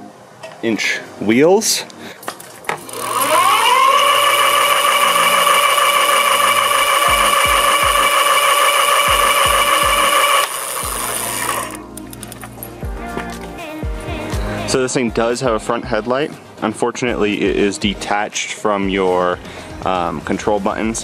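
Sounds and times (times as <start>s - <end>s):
electric hub motor whining: 2.8s - 11.8s.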